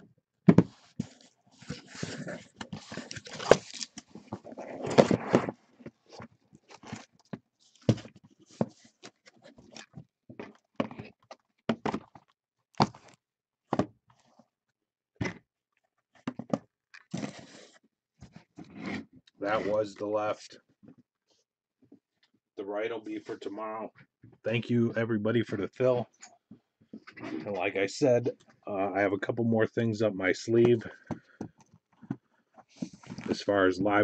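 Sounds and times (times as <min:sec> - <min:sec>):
cardboard scraping and rustling: 0:00.5 - 0:10.0, 0:17.1 - 0:19.8.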